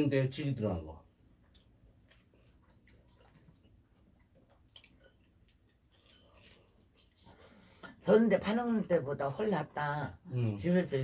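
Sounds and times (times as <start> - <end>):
soft chewing: 1.1 - 8.2.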